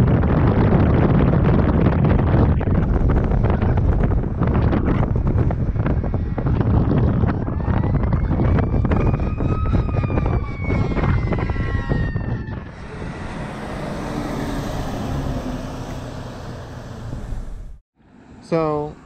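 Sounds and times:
wind buffeting microphone: 0.0s - 17.8s
distant siren wailing: 5.9s - 17.3s
truck driving past: 12.7s - 18.4s.

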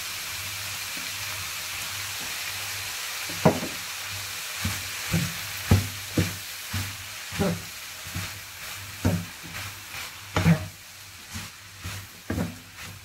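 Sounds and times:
frying pan sizzling: 0.0s - 13.0s
spatula knocking against pan: 4.6s - 8.3s, 9.0s - 9.6s, 11.8s - 12.6s.

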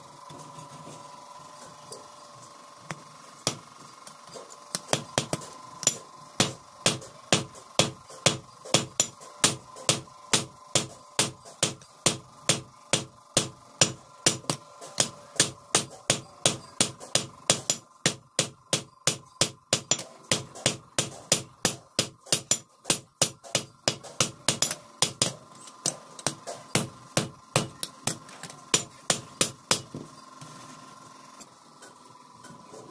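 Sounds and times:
hammer striking metal on anvil: 4.8s - 30.0s.

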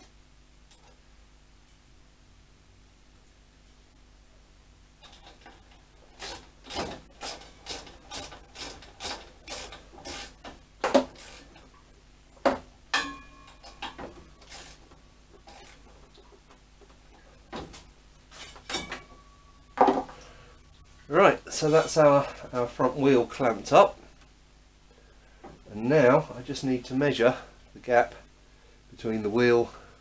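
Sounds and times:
hand tool strokes: 6.1s - 11.7s, 13.4s - 15.8s, 17.7s - 19.2s
metal clanks: 12.9s - 14.2s, 17.6s - 20.1s.

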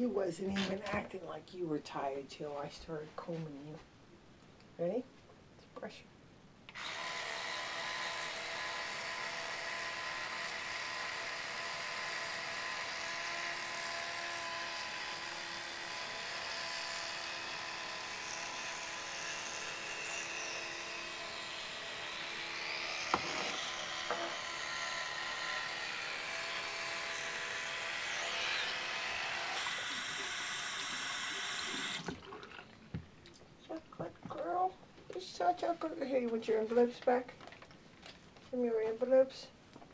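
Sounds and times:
electric toothbrush buzzing: 6.7s - 32.2s.

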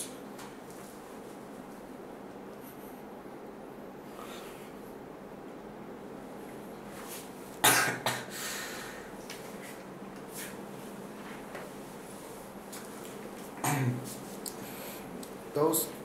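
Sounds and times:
person coughing: 7.6s - 8.4s, 13.6s - 14.0s.

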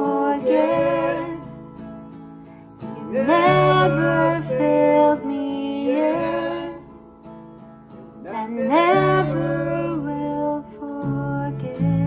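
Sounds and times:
man and woman singing: 0.0s - 1.5s, 2.9s - 7.0s, 8.2s - 12.0s
acoustic guitars: 0.0s - 12.0s
bass guitar: 11.1s - 12.0s.

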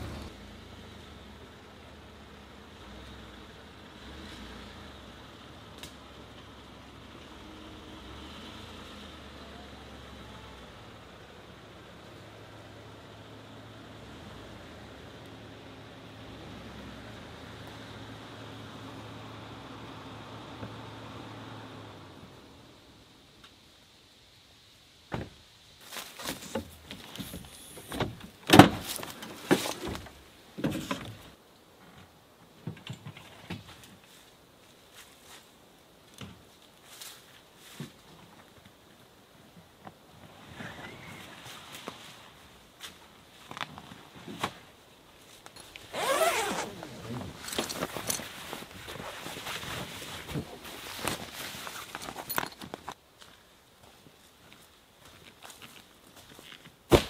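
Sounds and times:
rustling and handling: 25.8s - 31.4s, 41.3s - 57.0s
long zipper pulled open: 45.9s - 48.2s.

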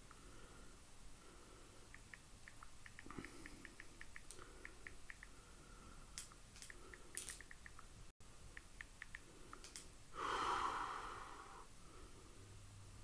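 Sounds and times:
faint small clicks: 1.9s - 5.4s, 6.1s - 7.9s, 8.5s - 9.9s
heavy breath exhale: 10.2s - 12.5s.

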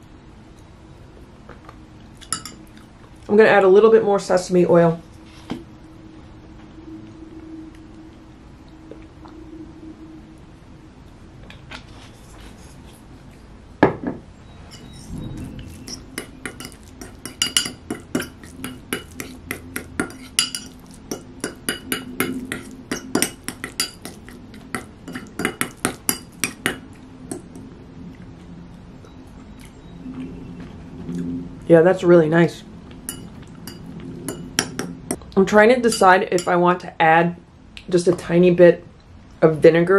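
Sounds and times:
fork clinking and scraping bowl: 2.2s - 2.7s, 14.7s - 27.5s, 33.1s - 35.2s, 35.9s - 36.6s.

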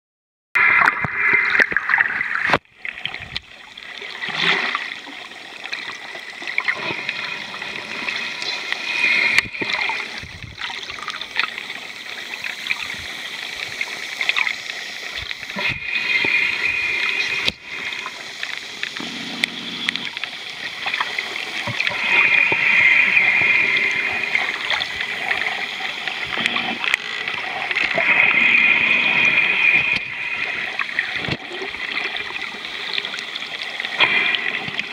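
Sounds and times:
water sloshing underwater: 0.6s - 34.9s
clicks and crackles: 26.2s - 28.2s.

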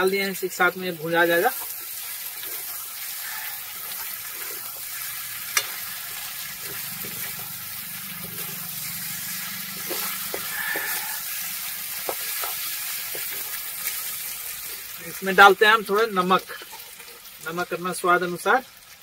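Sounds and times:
food sizzling in hot oil: 0.0s - 19.0s
spoon knocking against pan: 9.8s - 11.2s.

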